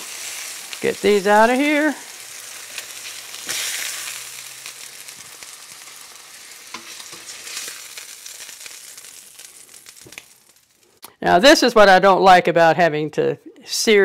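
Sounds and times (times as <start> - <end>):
meat sizzling in oil: 0.0 - 11.0
tongs clicking against pan: 6.7 - 7.8.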